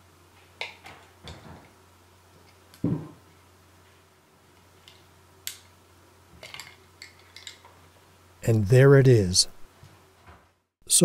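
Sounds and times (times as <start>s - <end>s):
dull thump: 2.8s - 3.2s.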